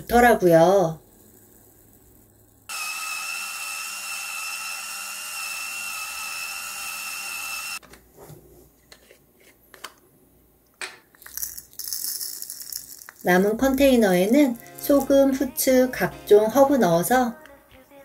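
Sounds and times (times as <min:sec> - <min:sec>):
electric grinder motor whine: 0:02.7 - 0:07.8.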